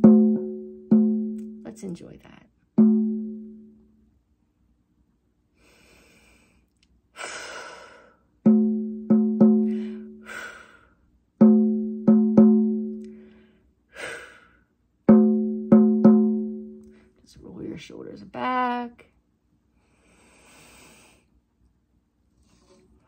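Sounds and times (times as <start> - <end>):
low struck percussion notes: 0.0 - 2.0, 2.8 - 3.8, 8.5 - 10.1, 11.4 - 13.2, 15.1 - 17.0
breathy exhalations: 9.6 - 11.0.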